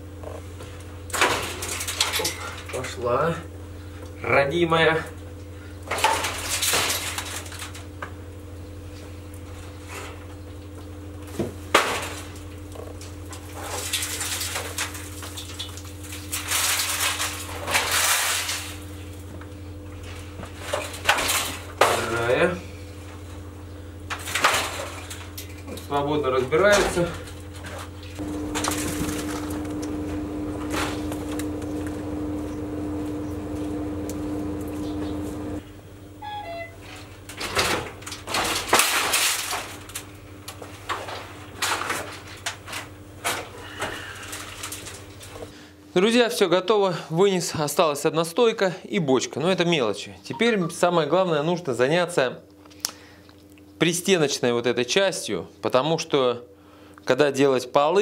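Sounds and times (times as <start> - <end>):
steady low hum: 0.0 - 45.9.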